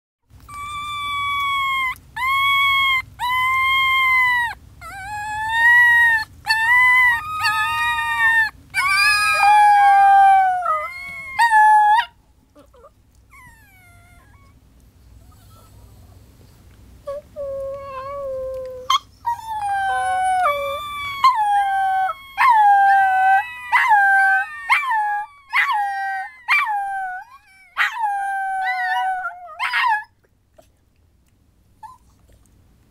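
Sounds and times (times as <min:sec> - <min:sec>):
puppies howling: 0:00.5 - 0:14.6, 0:17.1 - 0:30.1
puppies whimpering: 0:17.1 - 0:30.1.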